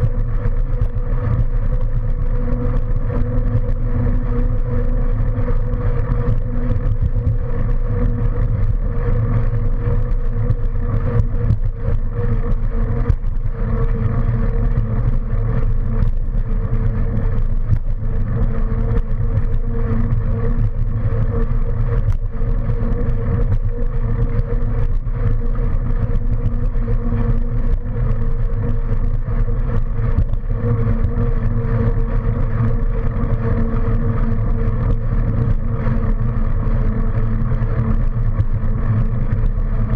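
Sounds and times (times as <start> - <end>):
mid-pitched vehicle hum: 0.0 - 39.9
wind rumbling over microphone: 0.0 - 39.9.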